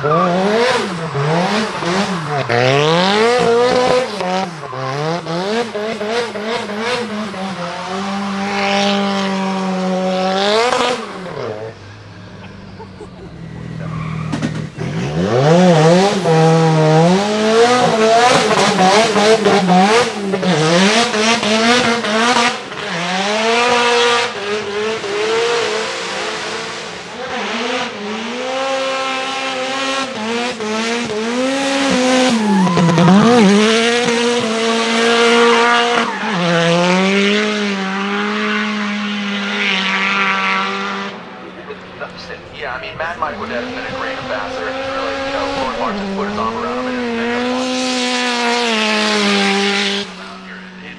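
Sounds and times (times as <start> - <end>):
car engine revving hard: 0.0 - 50.9
tyres squealing: 11.2 - 15.5, 31.9 - 34.4.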